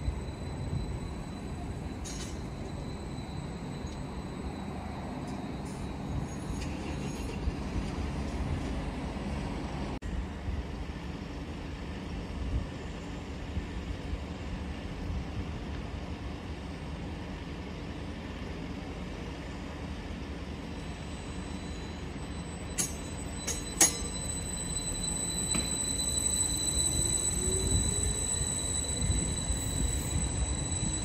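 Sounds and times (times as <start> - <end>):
train motor whine: 20.7 - 31.0.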